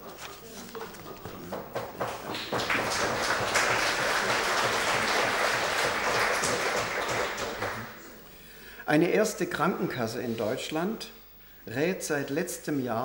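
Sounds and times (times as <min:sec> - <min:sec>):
audience applauding: 0:00.7 - 0:08.1.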